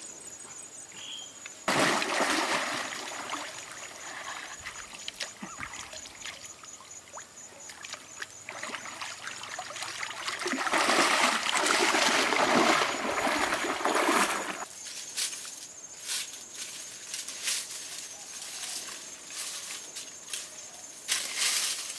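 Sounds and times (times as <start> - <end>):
water splashing from wading: 1.7 - 14.6.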